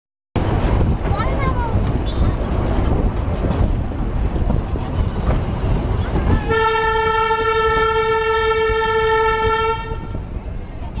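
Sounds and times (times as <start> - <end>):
train rumbling: 0.4 - 11.0
train horn blast: 6.4 - 10.3.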